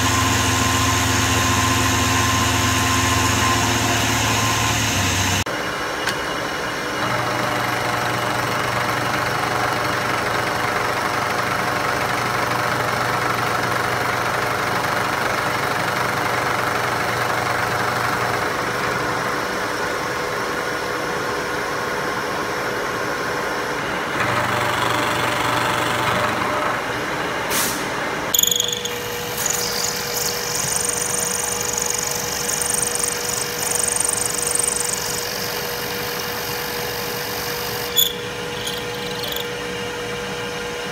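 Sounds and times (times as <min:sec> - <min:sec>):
milling machine cutting metal: 0:28.4 - 0:39.5
high cutter whine: 0:28.4 - 0:39.8.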